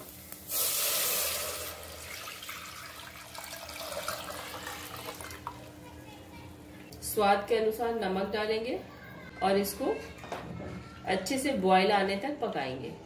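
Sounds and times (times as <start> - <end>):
batter sizzling in hot fat: 0.0 - 2.8
liquid pouring and splashing: 0.5 - 5.6.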